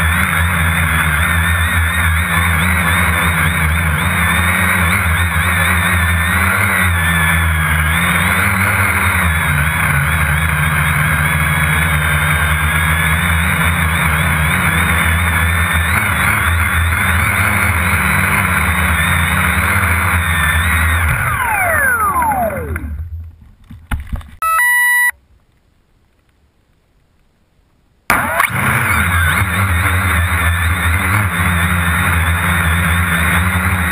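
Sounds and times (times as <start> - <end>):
drone propellers buzzing: 0.0 - 23.4, 28.1 - 33.9
motors spinning down whine: 0.0 - 23.4, 28.1 - 33.9
drone clattering on ground: 0.0 - 24.4
short beeps: 24.4 - 25.2.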